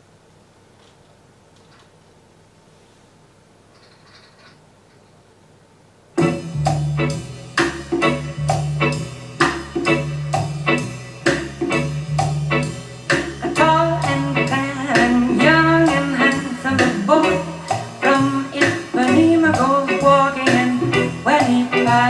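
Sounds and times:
bass line and beat: 6.2s - 22.0s
woman singing jazz: 13.3s - 22.0s.

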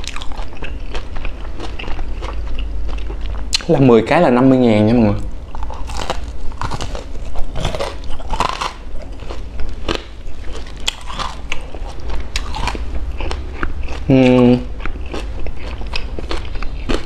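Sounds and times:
crunchy pastry chewing: 0.0s - 3.7s, 5.4s - 17.0s.

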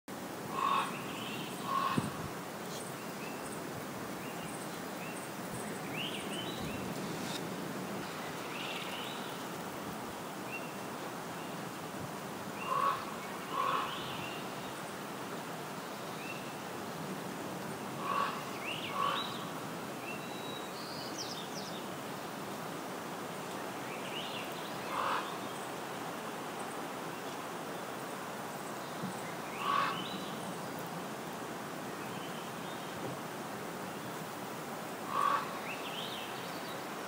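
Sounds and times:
steady outdoor hiss: 0.1s - 37.0s
lower paired bird calls: 0.5s - 7.4s, 8.0s - 9.5s, 12.5s - 15.0s, 17.7s - 21.9s, 23.7s - 30.9s, 35.0s - 37.0s.

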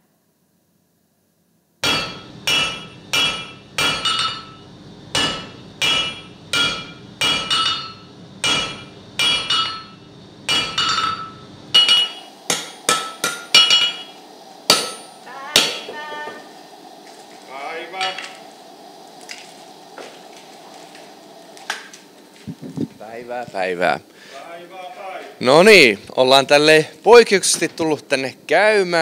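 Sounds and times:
hammer striking iron on anvil: 1.8s - 15.9s.

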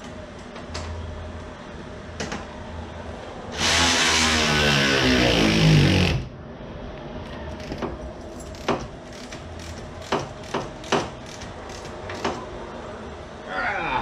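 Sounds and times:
tools clicking and knocking: 7.6s - 12.4s.

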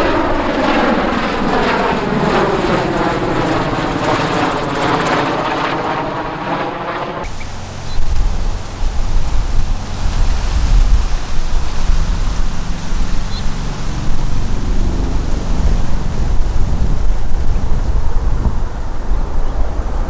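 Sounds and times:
tiltrotor aircraft rotors rumbling: 0.0s - 20.0s
wind gusts on microphone: 7.2s - 20.0s.

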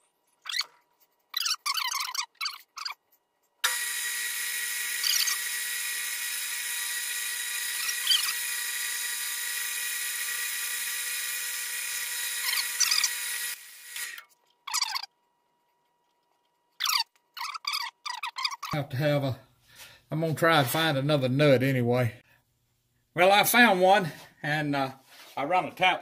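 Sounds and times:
metal lathe whining: 3.6s - 14.2s.

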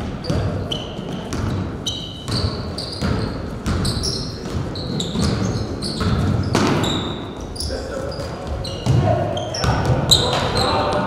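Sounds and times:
basketball dribbling on gym floor: 0.0s - 7.1s
sneaker squeaks: 0.0s - 11.0s
murmur of voices: 7.2s - 11.0s.

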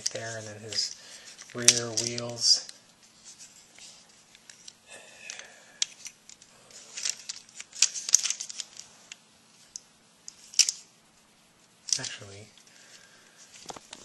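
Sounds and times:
plastic toy parts clicking: 0.0s - 2.5s, 4.4s - 10.8s, 11.9s - 12.2s.

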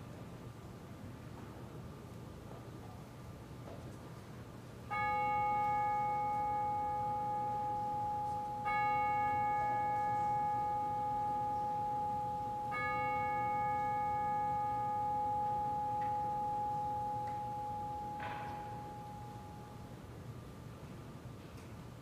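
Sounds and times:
bell ringing: 4.9s - 20.0s.

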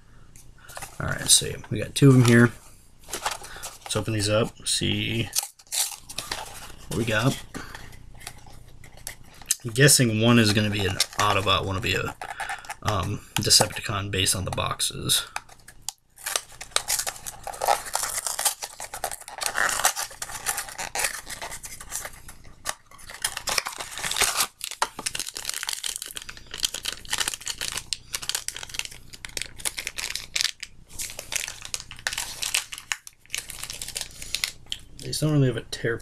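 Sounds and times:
packaging crinkling and tearing: 0.7s - 4.4s, 5.1s - 34.9s.

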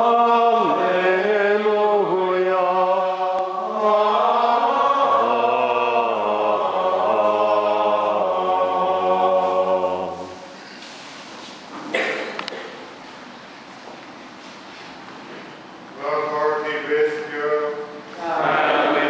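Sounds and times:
choir singing plainchant: 0.0s - 10.6s, 18.2s - 19.0s.

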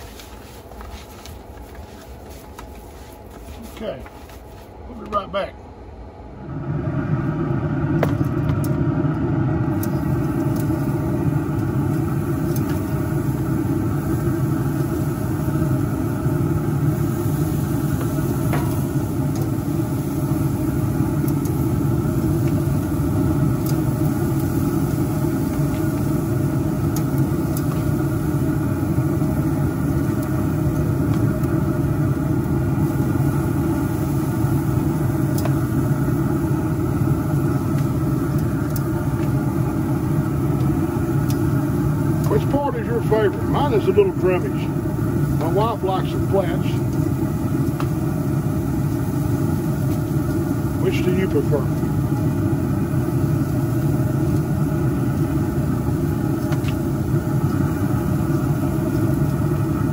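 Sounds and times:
grill fan humming: 0.0s - 59.9s.

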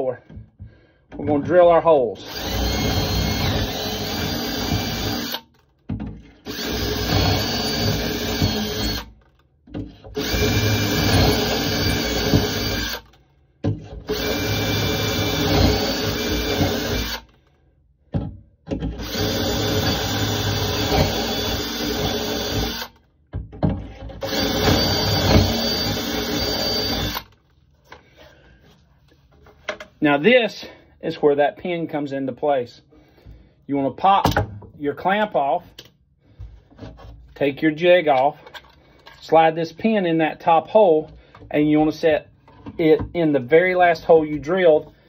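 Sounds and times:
cordless drill boring into wood: 2.2s - 5.7s, 6.4s - 9.2s, 10.1s - 13.2s, 14.0s - 17.5s, 18.9s - 23.0s, 24.2s - 27.4s.

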